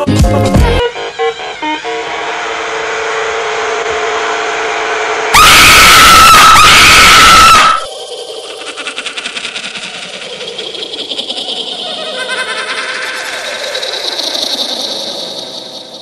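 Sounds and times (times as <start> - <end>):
held musical note: 0.6 - 4.5
harsh scream sound effect: 0.9 - 7.9.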